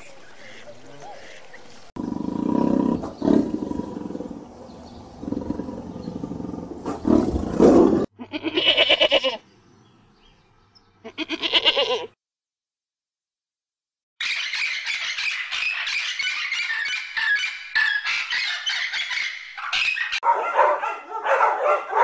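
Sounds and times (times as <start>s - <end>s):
tiger growling: 2.0s - 8.1s
goat bleating: 8.2s - 9.4s, 11.0s - 12.2s.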